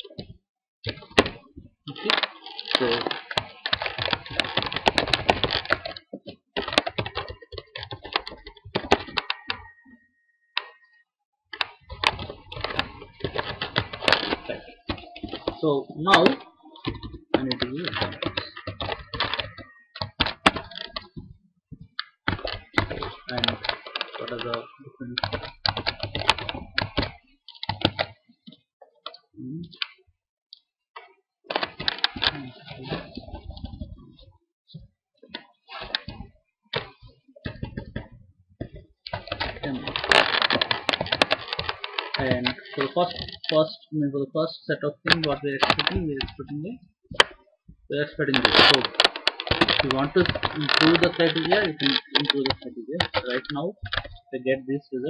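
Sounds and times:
typing on a computer keyboard: 2.0s - 9.8s, 16.2s - 21.2s, 22.0s - 28.1s.

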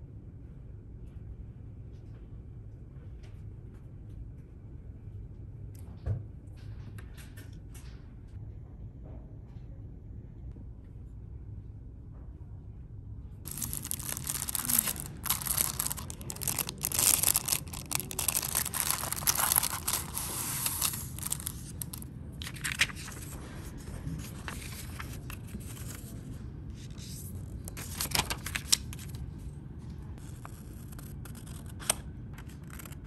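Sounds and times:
crinkling and rustling: 13.5s - 26.2s.

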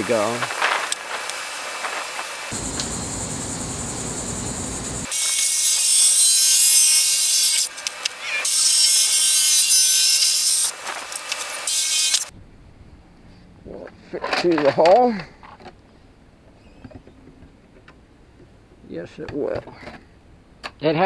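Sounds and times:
low rushing noise: 2.5s - 5.1s.

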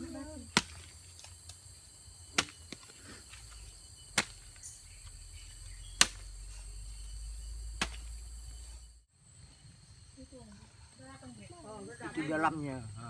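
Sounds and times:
insects chirring: 0.0s - 13.0s
hoe chopping into soil: 0.5s - 0.9s, 2.3s - 4.7s, 5.8s - 6.6s, 7.7s - 8.3s.

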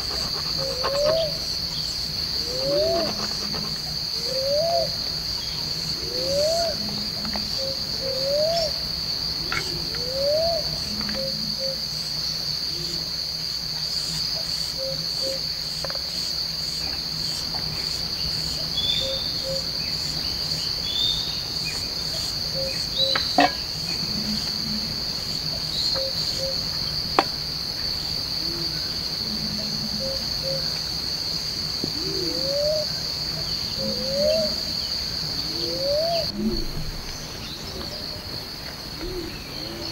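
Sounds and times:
insect chorus drone: 0.0s - 39.9s.

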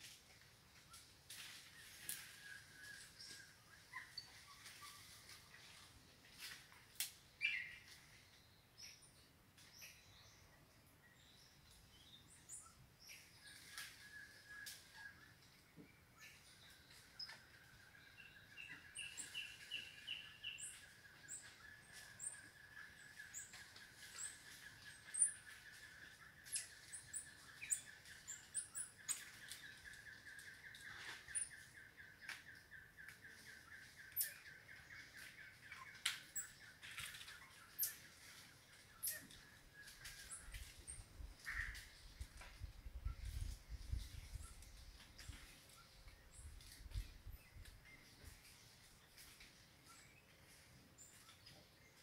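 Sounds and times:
bird chirps and calls: 16.2s - 42.4s.

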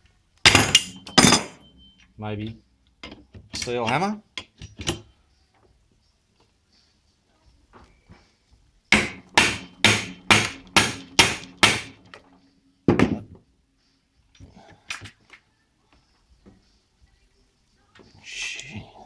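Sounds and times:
mallet striking metal bolt: 0.5s - 1.6s, 8.9s - 12.2s.

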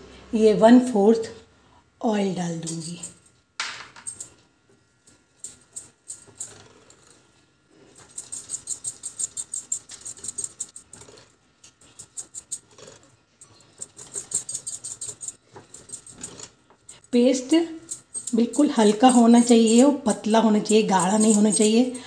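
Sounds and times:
whisk clicking against glass bowl: 17.8s - 21.8s.

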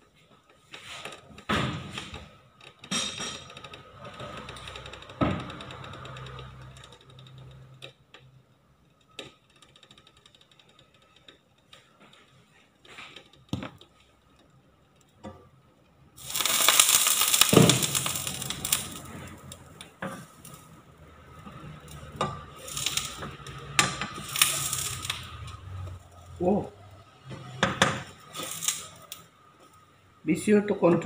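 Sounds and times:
hot frying pan sizzling: 16.2s - 26.5s, 27.1s - 29.3s.

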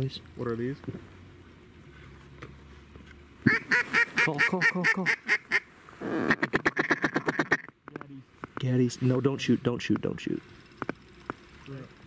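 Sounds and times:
duck call quacks: 3.4s - 7.7s
duck call feeding chuckle: 3.5s - 7.7s.

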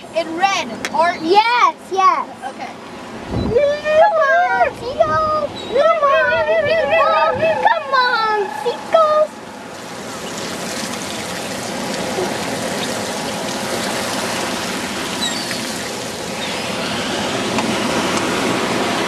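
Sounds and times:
surf washing over sand: 9.7s - 19.0s.

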